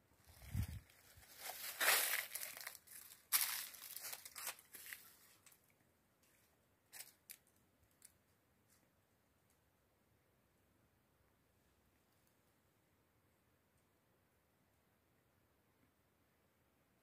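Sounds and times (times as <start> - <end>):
dry plant stems rustling: 0.2 - 5.6, 6.3 - 8.1.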